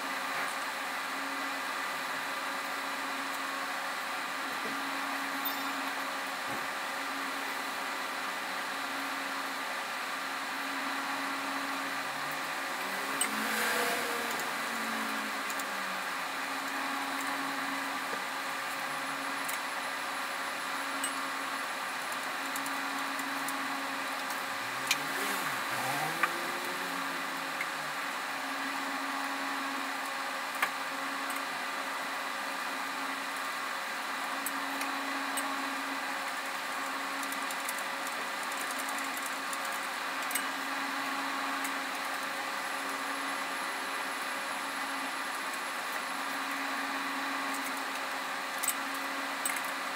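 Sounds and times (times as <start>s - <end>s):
steady machine hum: 0.0s - 49.9s.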